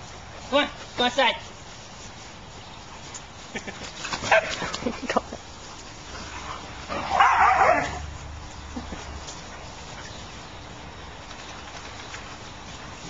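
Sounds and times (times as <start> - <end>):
dogs barking and yipping: 3.0 - 5.0, 5.7 - 10.3.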